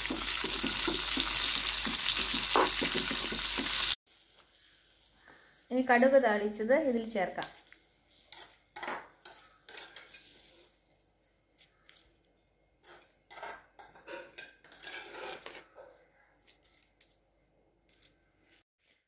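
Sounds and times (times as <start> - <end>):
spoon scraping metal pot: 8.2 - 10.8, 12.8 - 15.8.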